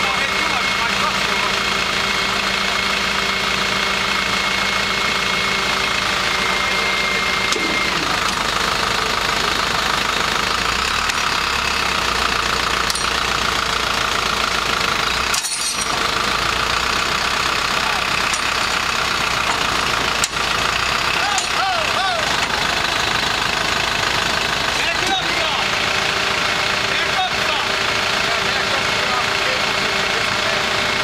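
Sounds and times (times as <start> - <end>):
truck engine running: 0.0 - 31.0
winch whine: 0.0 - 31.0.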